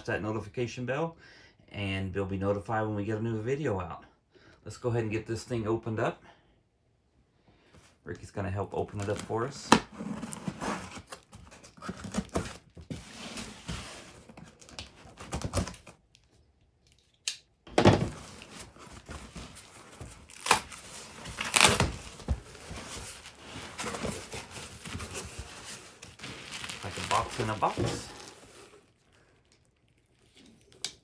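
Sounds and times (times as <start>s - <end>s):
tape ripping: 18.3s - 31.0s.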